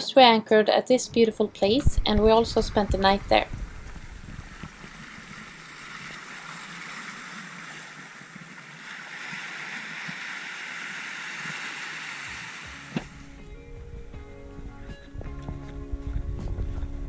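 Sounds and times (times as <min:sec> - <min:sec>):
surf washing over sand: 0:02.0 - 0:13.1.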